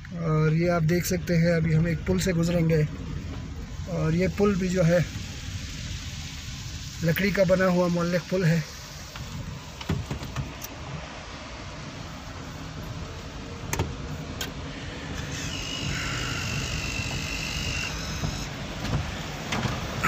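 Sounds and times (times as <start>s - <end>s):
high steady whine: 11.8s - 19.0s
car rolling over wooden planks: 13.7s - 20.0s
knocks from planks: 15.9s - 20.0s.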